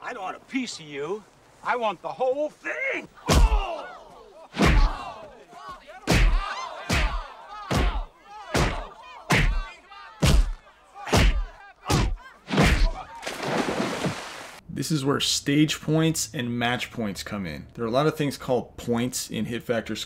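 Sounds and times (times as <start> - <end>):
grunts and cries of pain: 3.2 - 5.1
punch thwacks: 4.6 - 5.0, 6.1 - 13.0.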